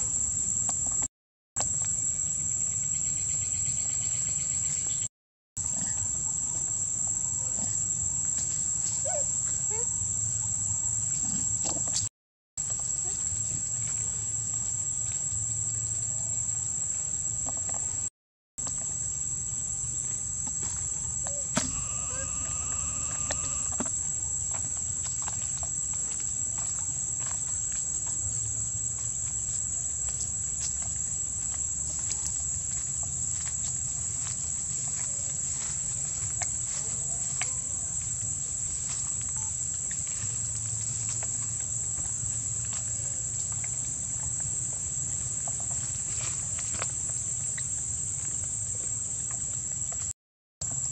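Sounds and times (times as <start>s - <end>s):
insects droning: 12.6s - 50.9s
short call: 21.3s - 23.8s.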